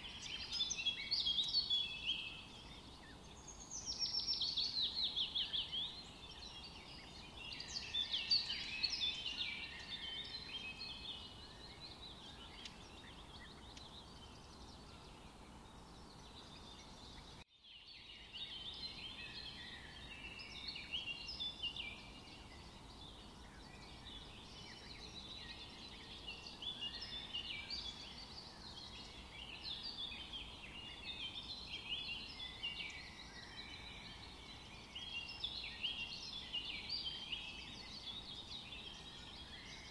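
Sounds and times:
small birds chirping and twittering: 0.0s - 39.9s.

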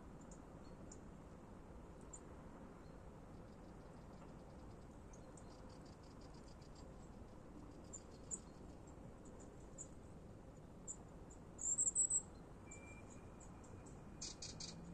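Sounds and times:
small wildlife chirps and ticks: 0.2s - 1.1s, 2.0s - 14.9s.

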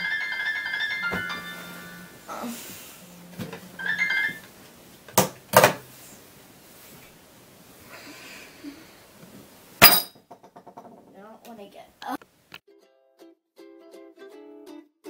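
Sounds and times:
electronic alarm beeping melody: 3.8s - 4.4s.

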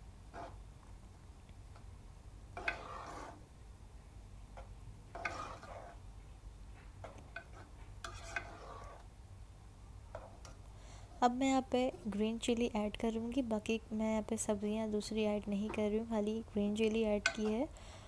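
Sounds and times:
metal spoon scraping a pot: 0.3s - 0.6s, 2.6s - 3.4s, 5.1s - 6.0s, 7.0s - 9.1s.

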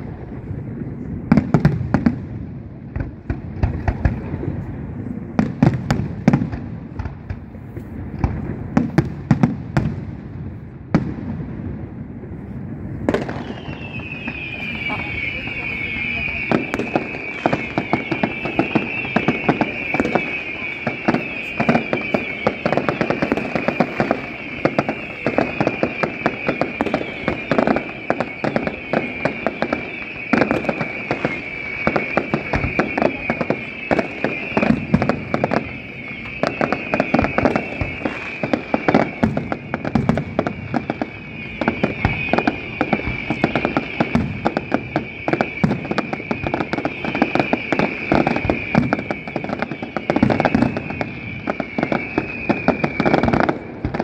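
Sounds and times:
fireworks bangs and crackles: 0.0s - 54.0s
high-pitched hiss: 30.2s - 40.0s.

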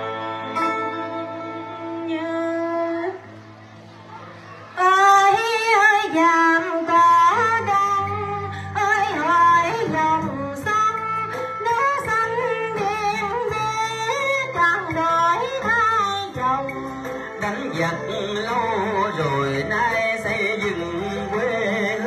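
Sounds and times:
woman singing into microphone: 0.0s - 3.4s, 4.8s - 22.0s
instrumental accompaniment: 0.0s - 22.0s.

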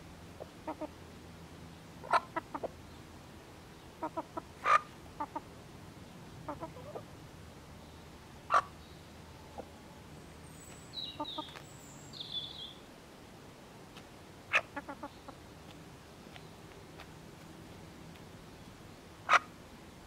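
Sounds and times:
hens clucking: 2.0s - 2.8s, 4.0s - 5.5s, 6.4s - 7.1s, 8.5s - 8.8s, 14.5s - 15.4s
small bird chirping: 7.8s - 12.9s.

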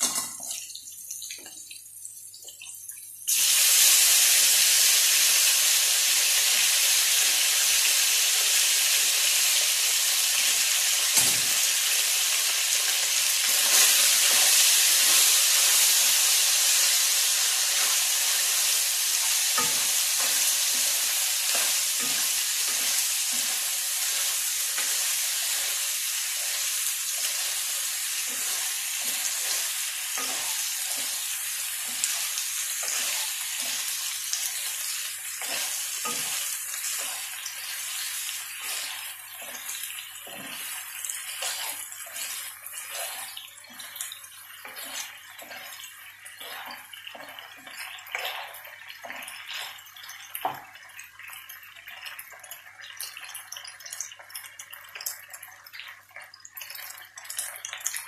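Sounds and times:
pasta and shrimp sizzling: 3.3s - 58.0s
spatula scraping a pan: 17.6s - 49.8s.

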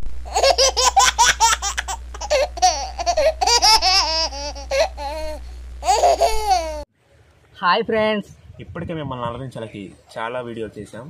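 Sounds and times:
steady low hum: 0.0s - 11.0s
baby laughing: 0.3s - 6.8s.

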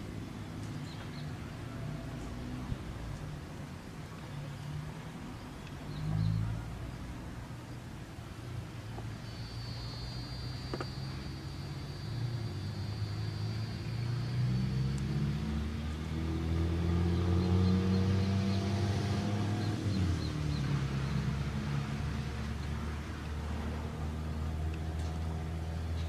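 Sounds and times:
car driving by: 9.6s - 25.7s.

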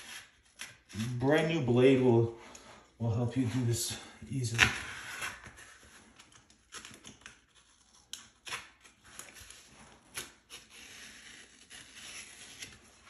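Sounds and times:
box cutter scratching through membrane: 6.6s - 13.0s.

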